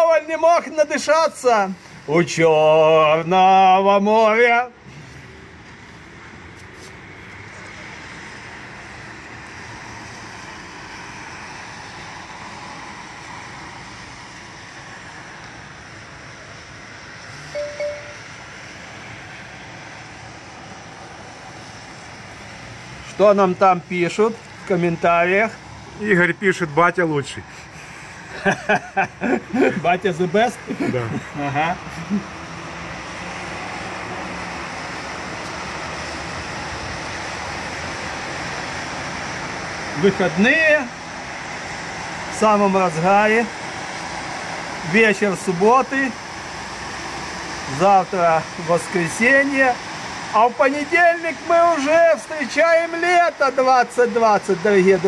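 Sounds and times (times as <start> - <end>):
tyres swishing on wet road: 0.0 - 55.0.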